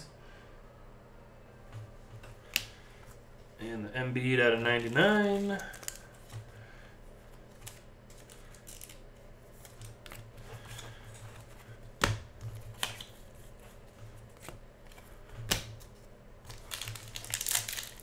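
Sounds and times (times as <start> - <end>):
cards being flipped through: 4.8 - 6.4, 7.3 - 10.2, 12.1 - 18.0.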